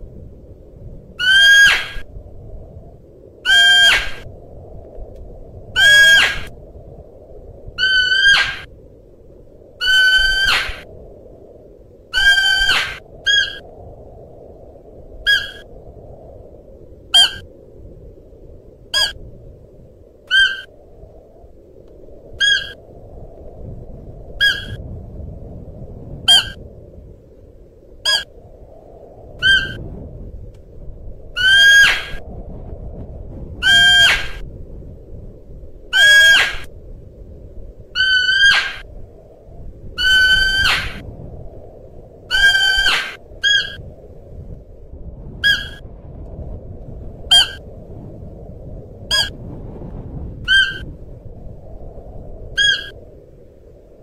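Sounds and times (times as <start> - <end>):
deer high-pitched cries: 1.2 - 2.0, 5.8 - 6.4, 20.3 - 20.7, 33.6 - 34.2, 36.0 - 36.6.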